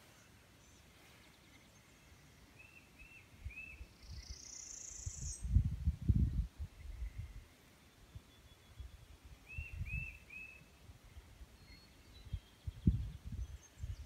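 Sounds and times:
birds chirping: 0.0s - 5.6s, 6.3s - 14.0s
wind buffeting microphone: 5.0s - 7.4s, 8.8s - 10.2s, 12.2s - 14.0s.

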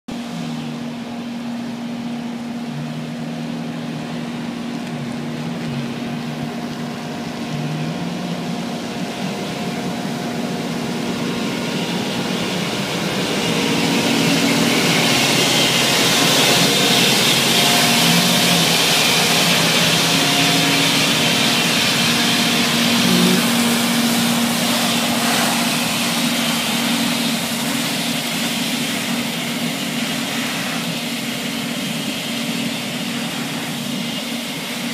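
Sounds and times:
diesel engine hum: 0.0s - 34.9s
suction fan and brushes hissing: 0.2s - 34.9s.

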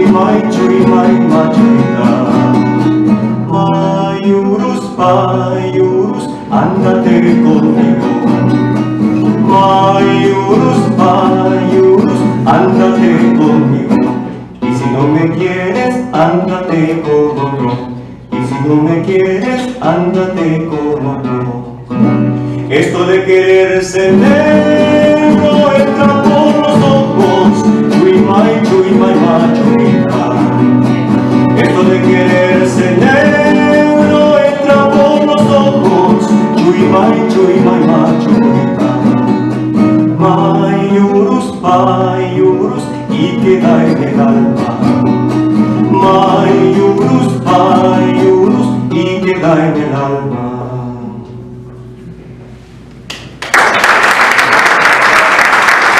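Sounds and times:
man singing: 0.0s - 51.4s
nylon-string guitar: 0.0s - 52.7s
audience applause: 53.4s - 55.9s.

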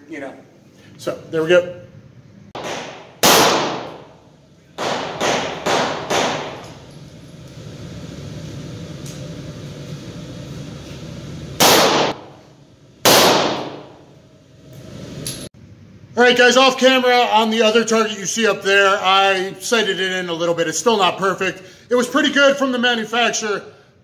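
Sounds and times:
handgun shots: 2.6s - 4.1s, 4.8s - 6.8s, 11.6s - 12.2s, 13.0s - 13.9s.

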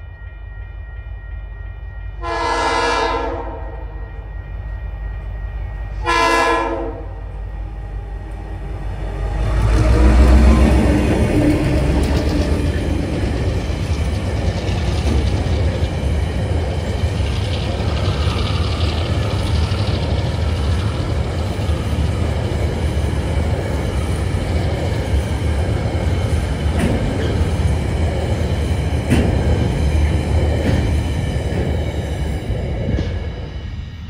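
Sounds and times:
train wheels rumbling on rails: 0.0s - 34.0s
wheels clacking over rail joints: 8.3s - 33.3s.

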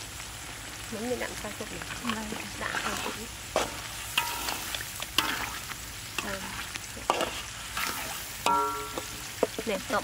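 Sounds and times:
chili paste sizzling in oil: 0.0s - 10.0s
metal ladle clinking on wok: 4.1s - 5.5s, 7.1s - 9.6s.

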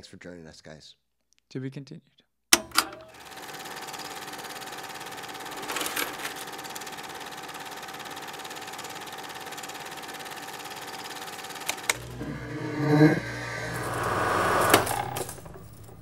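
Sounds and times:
film projector clattering: 2.6s - 16.0s
sharp clicks: 11.6s - 12.2s.

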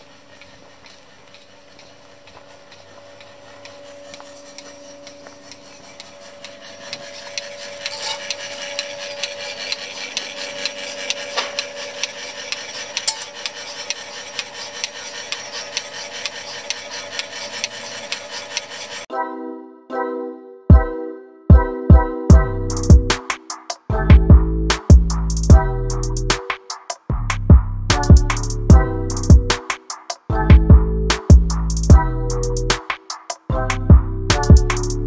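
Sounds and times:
milking machine humming and clicking: 0.0s - 19.1s.

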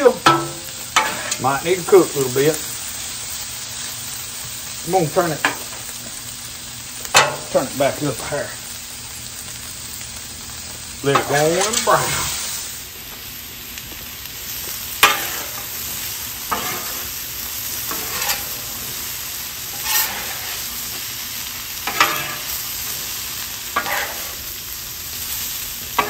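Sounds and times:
food sizzling on a griddle: 0.0s - 26.0s
spatula scraping a griddle: 0.2s - 2.7s, 7.1s - 8.3s, 11.0s - 12.6s, 14.5s - 24.6s.

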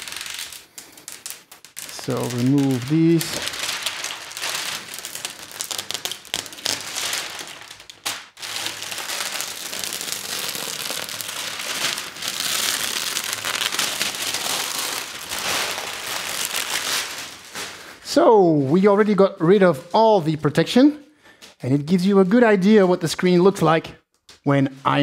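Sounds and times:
plastic foil peeled and crumpled: 0.0s - 18.0s.

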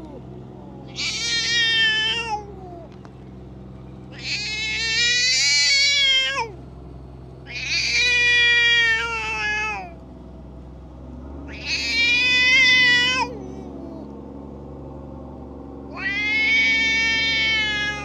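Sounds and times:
cat yowling: 0.0s - 3.0s, 4.1s - 6.6s, 7.4s - 10.0s, 11.5s - 14.3s, 15.8s - 18.0s.

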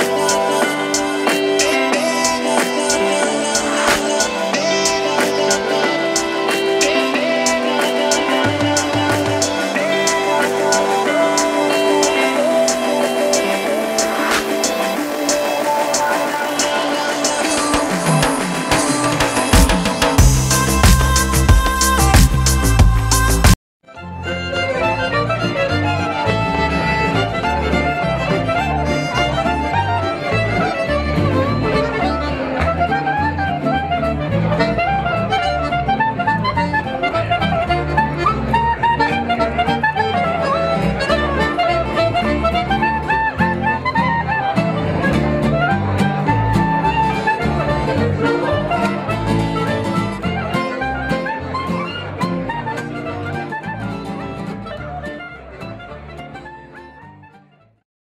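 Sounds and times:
acoustic guitar strumming: 0.0s - 23.5s, 24.6s - 56.4s
clarinet melody: 0.0s - 57.8s
folk band with button accordion: 17.2s - 57.0s.

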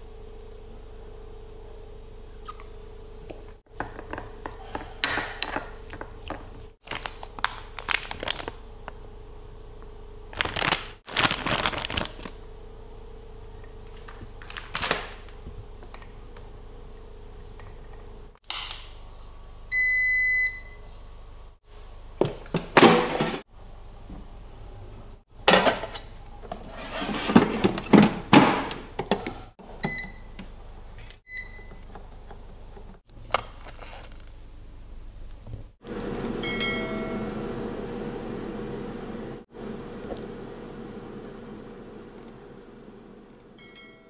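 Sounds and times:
air fryer electronic beep: 19.7s - 21.0s, 29.8s - 30.4s, 31.3s - 31.8s, 36.1s - 38.0s.

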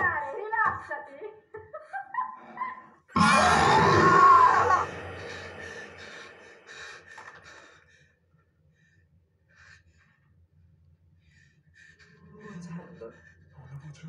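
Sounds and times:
horror film soundtrack: 3.2s - 7.8s.

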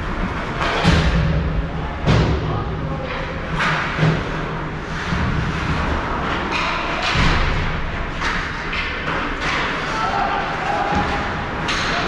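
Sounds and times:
skates scraping ice: 3.5s - 7.0s.

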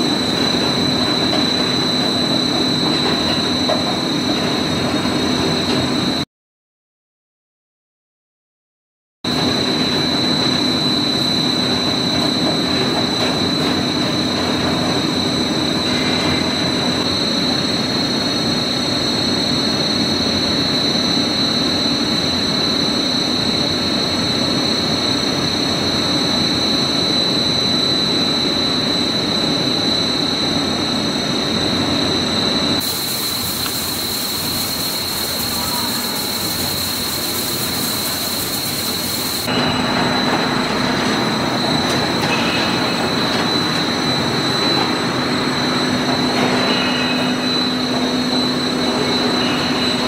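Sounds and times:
high mechanical whine: 0.0s - 6.2s, 9.3s - 50.0s
bright hiss: 32.8s - 39.5s
wire drawing machine running: 32.8s - 50.0s.

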